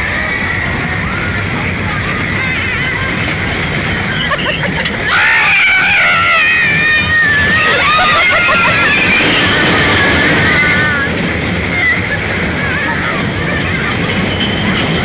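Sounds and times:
fairground ride rumbling: 0:00.0 - 0:15.0
riders screaming: 0:04.1 - 0:11.1.

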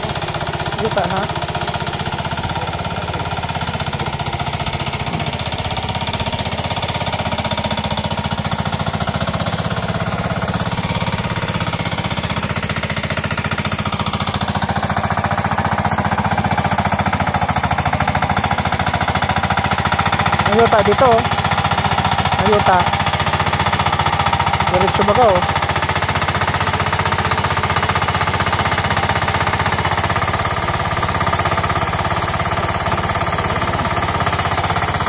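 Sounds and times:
tractor engine chugging: 0:00.0 - 0:35.0.

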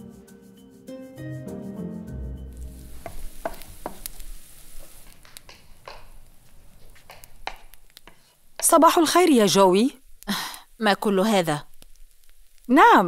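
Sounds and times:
music: 0:00.0 - 0:03.5
eggs sizzling in frying pan: 0:02.5 - 0:13.0.

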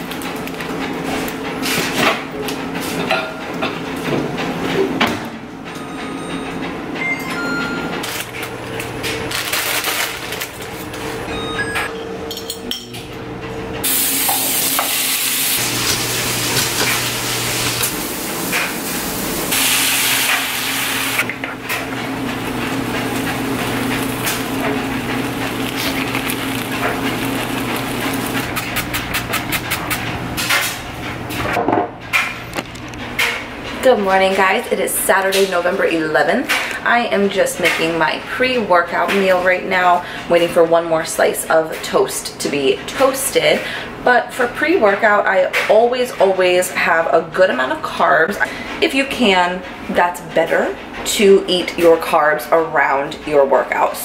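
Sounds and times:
appliance hum: 0:00.0 - 0:54.0
dishes and utensils clinking: 0:11.8 - 0:13.1
food sizzling in a pan: 0:13.9 - 0:21.2.

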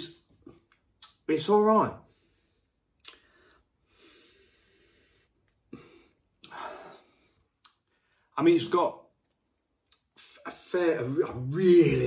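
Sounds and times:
breathy exhale: 0:03.2 - 0:07.4.

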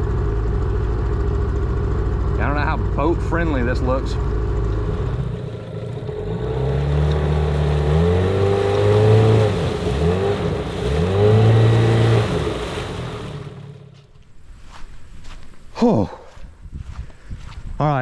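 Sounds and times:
outboard motor under throttle: 0:00.0 - 0:14.0
rush of boat wake: 0:05.0 - 0:13.9.

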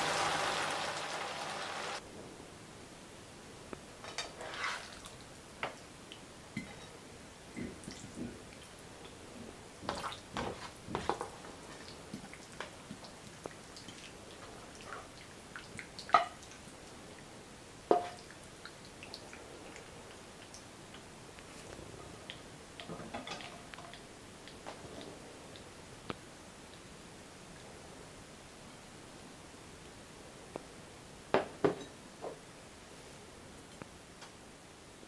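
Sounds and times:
spatula scraping frying pan: 0:04.2 - 0:05.0.

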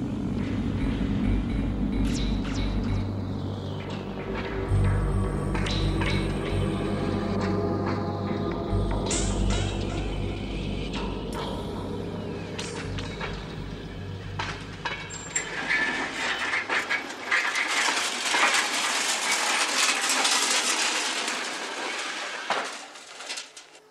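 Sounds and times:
low rumble: 0:00.0 - 0:17.0
hissing rail noise: 0:00.0 - 0:23.9
wheels clicking over rails: 0:00.0 - 0:23.9.

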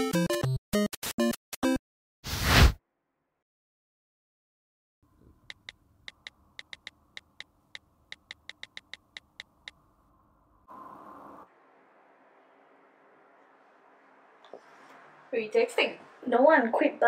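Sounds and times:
phone keyboard clicks: 0:05.5 - 0:09.8.

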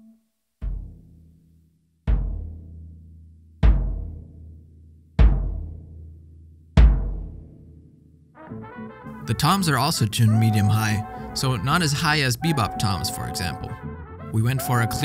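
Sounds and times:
bass drum strokes: 0:06.8 - 0:07.5.

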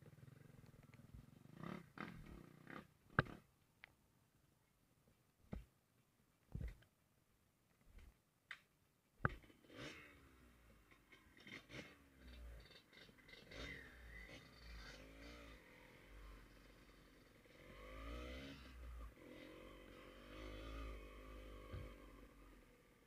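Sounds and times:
faint motorcycle engine revving: 0:00.0 - 0:03.5, 0:09.2 - 0:23.0.

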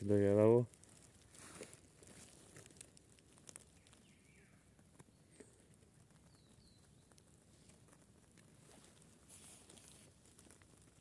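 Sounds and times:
campfire crackling: 0:00.0 - 0:11.0
faint bird chirps: 0:03.7 - 0:07.7.

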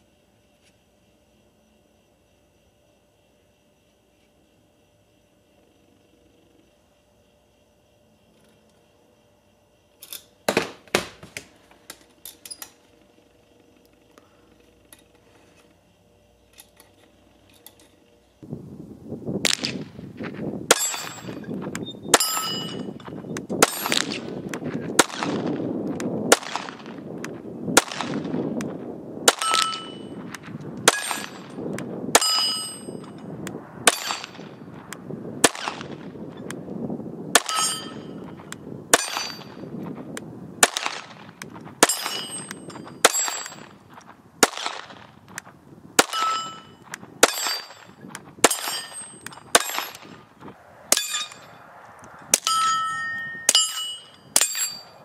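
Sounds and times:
steel target ringing ping: 0:22.1 - 0:23.0, 0:29.4 - 0:30.2, 0:32.2 - 0:33.2, 0:37.4 - 0:38.3, 0:46.0 - 0:47.8, 0:50.9 - 0:51.6, 0:52.3 - 0:55.0
pistol shots: 0:23.6 - 0:24.4, 0:25.0 - 0:25.6, 0:26.3 - 0:27.0, 0:27.8 - 0:28.4, 0:29.2 - 0:31.5, 0:33.9 - 0:34.5, 0:35.4 - 0:36.1, 0:40.6 - 0:43.8, 0:44.4 - 0:45.1, 0:46.0 - 0:46.6, 0:47.2 - 0:50.2.

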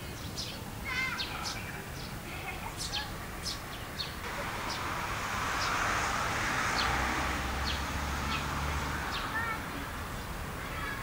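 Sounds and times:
sparrows chirping: 0:00.0 - 0:11.0
passing vehicle: 0:03.6 - 0:11.0.

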